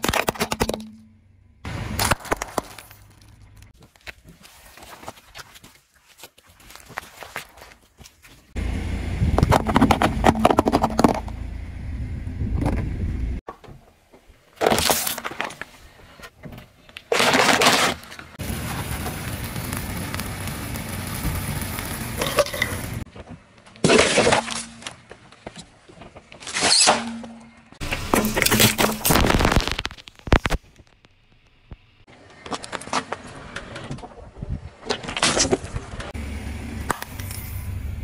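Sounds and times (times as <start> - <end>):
car tyre crushing objects: 0.0 - 5.7, 9.2 - 11.6, 16.9 - 34.2
sharp cracks and pops: 1.9 - 4.2, 26.2 - 34.1
firework fizzing: 18.4 - 23.0.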